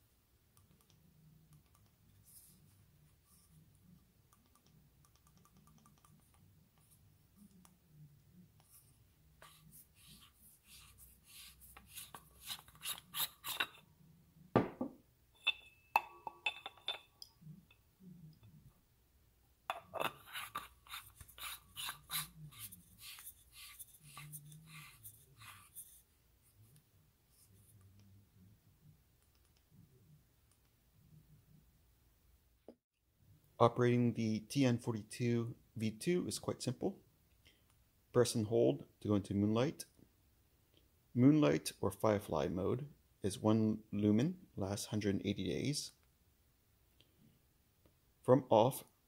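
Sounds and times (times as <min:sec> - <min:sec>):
metallic clinks: 0:15.4 - 0:17.4.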